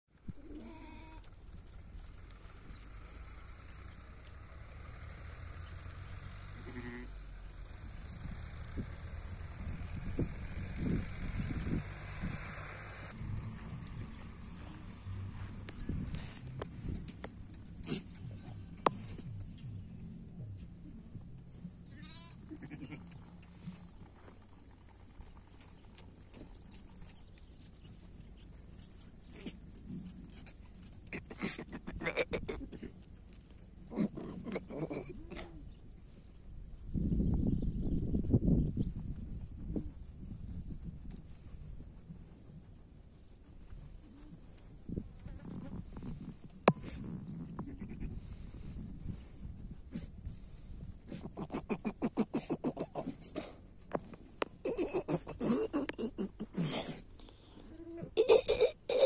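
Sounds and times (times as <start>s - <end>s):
sheep bleating: 0.4s - 1.3s, 6.6s - 7.2s, 21.9s - 23.1s, 47.6s - 48.1s
low rumble: 6.6s - 25.6s
faint clicks from flock: 22.2s - 29.5s.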